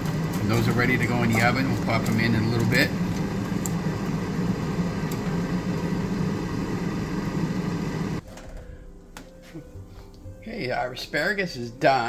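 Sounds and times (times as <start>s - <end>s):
machine humming: 0.0s - 8.2s.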